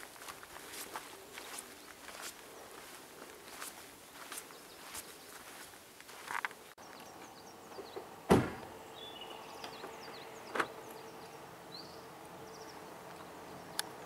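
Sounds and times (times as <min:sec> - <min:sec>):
car door slamming: 0:08.3 - 0:08.8.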